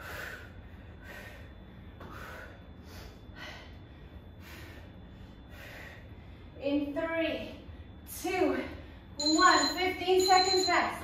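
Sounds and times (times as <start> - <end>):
woman breathing hard: 0.0 - 6.6.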